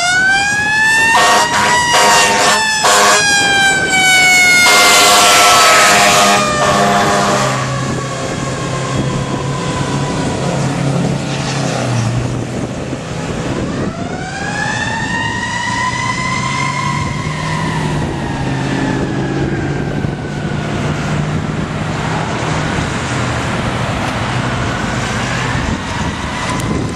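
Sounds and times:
diesel engine rumble: 0.0 - 26.9
air horn blast: 1.1 - 8.0.

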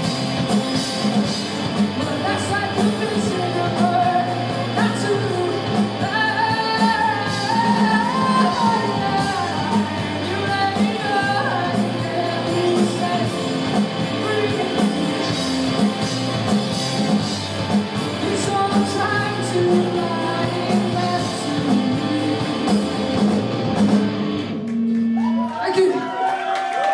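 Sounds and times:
live rock band with singer: 0.0 - 25.9.

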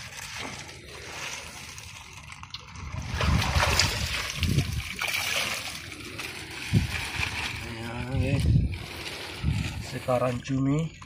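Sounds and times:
water splashing and sloshing: 0.0 - 11.0
water trickling from bag: 0.0 - 11.0.

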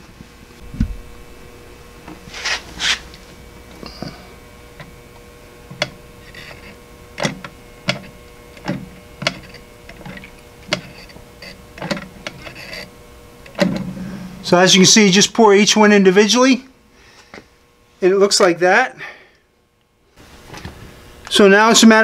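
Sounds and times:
faint steady hum: 0.0 - 22.0
short scrapes: 2.2 - 3.2.

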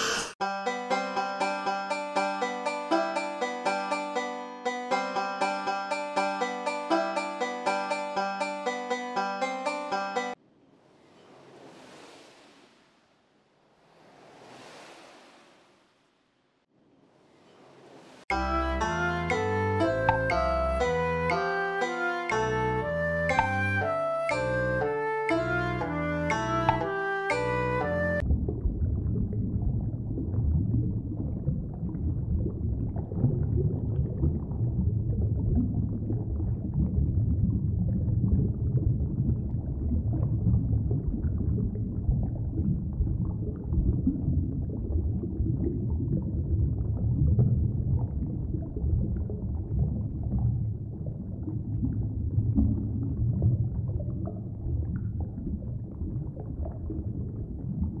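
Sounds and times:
faint bubbling: 18.6 - 58.0
underwater rumble: 28.2 - 58.0.

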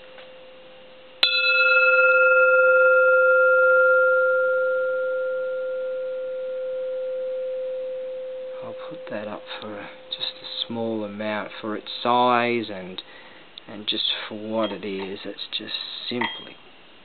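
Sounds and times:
small hanging bell ringing: 1.2 - 11.1, 14.6 - 14.9, 16.2 - 16.6.

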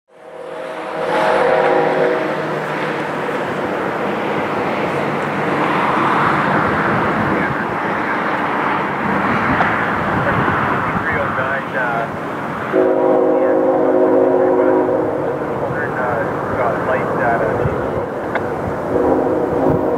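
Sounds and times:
distant train air horn: 0.1 - 3.1, 12.7 - 15.4, 18.9 - 19.9
approaching train noise: 0.1 - 19.9.

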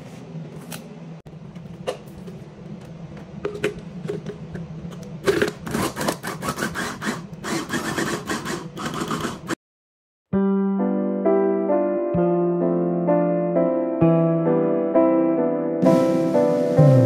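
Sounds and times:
scraping and rubbing: 3.5 - 9.6.

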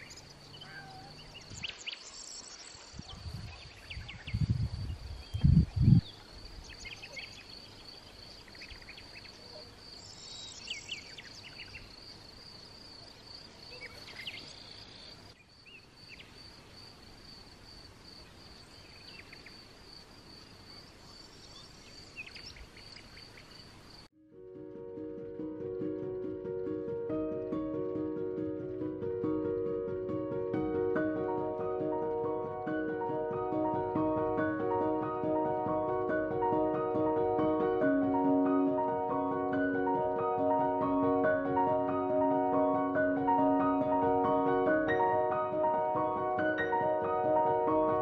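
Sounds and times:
bird chirps: 0.0 - 12.1, 13.6 - 16.4, 20.7 - 23.8.

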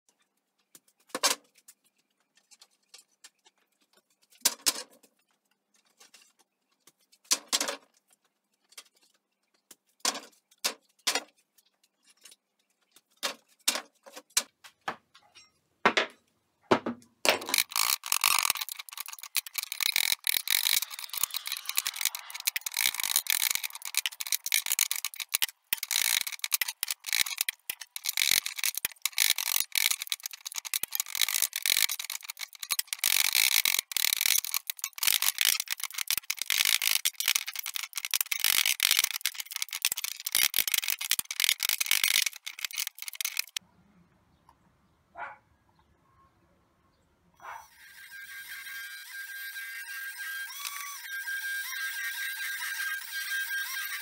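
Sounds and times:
rattle of fast clicks: 17.3 - 43.6, 48.0 - 54.0.

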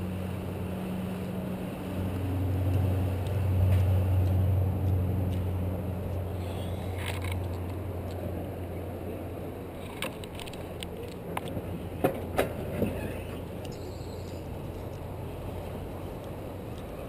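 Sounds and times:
sled rumbling on steel rail: 9.7 - 17.0.

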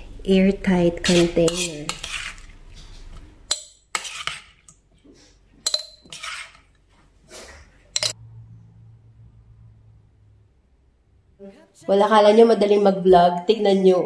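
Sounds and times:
scraping and sliding food: 1.0 - 8.2
spoon clinking on glass: 5.6 - 6.1.

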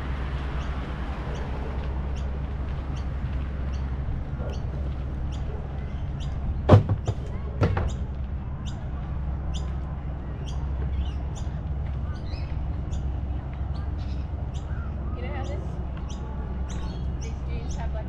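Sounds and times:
steady low rumble: 0.0 - 18.0
sharp knocks: 6.7 - 8.0.

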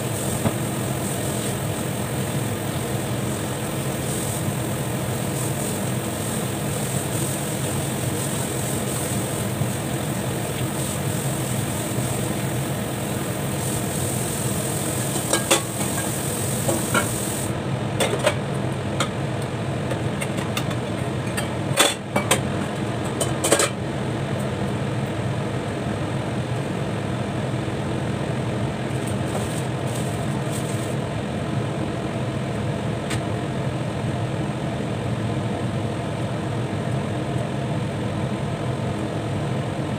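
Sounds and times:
kitchen equipment humming: 0.0 - 23.8.

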